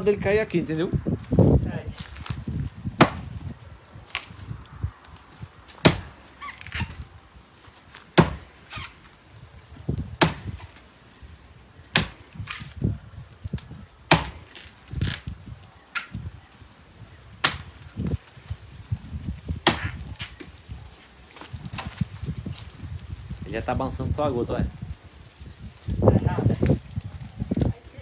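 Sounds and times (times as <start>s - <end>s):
axe chopping wood: 3.0s - 3.4s, 5.7s - 7.0s, 8.1s - 8.9s, 10.2s - 10.8s, 11.9s - 12.8s, 14.0s - 15.2s, 17.4s - 18.1s, 19.6s - 20.5s.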